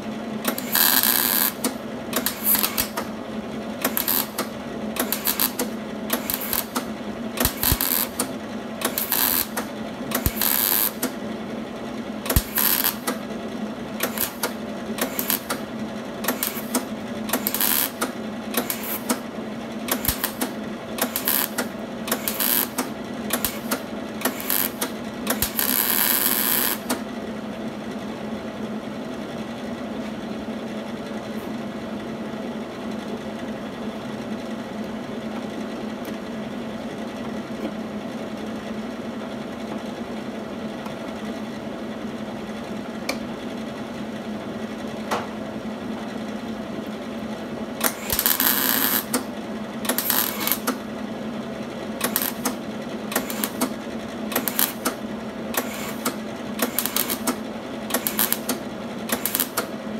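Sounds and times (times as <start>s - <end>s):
steady hum: 0.0s - 28.5s
welder crackling: 0.5s - 3.1s, 3.8s - 11.2s, 12.3s - 13.2s, 14.0s - 15.6s, 16.3s - 19.2s, 19.9s - 27.0s, 47.8s - 49.3s, 49.9s - 50.8s, 52.0s - 55.0s, 55.6s - 59.7s.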